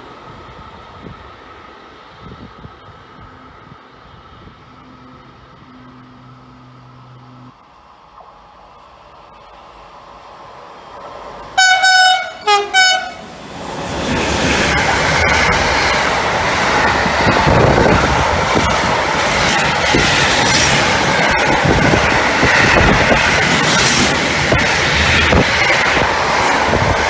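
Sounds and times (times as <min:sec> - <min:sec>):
train passing with rush: 0:00.0 - 0:27.0
rail clatter: 0:10.9 - 0:27.0
train horn blasts: 0:11.6 - 0:13.3.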